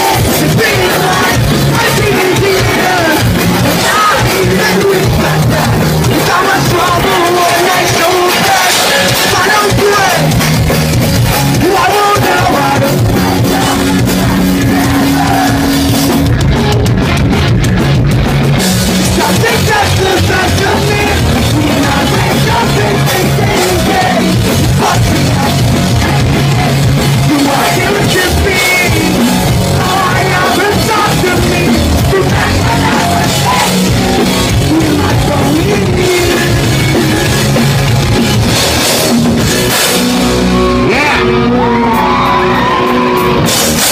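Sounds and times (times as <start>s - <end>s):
singer shouting vocals: 0.0s - 10.4s, 11.6s - 15.9s, 19.0s - 37.3s, 40.5s - 43.4s
distorted electric guitars: 0.0s - 43.9s
drums: 0.0s - 43.9s.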